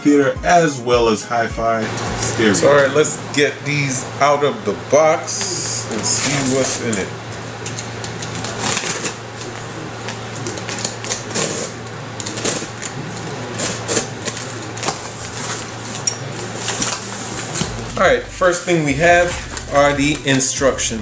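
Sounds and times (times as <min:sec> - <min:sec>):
knife slitting packing tape: 0:10.6 - 0:12.9, 0:13.5 - 0:16.0.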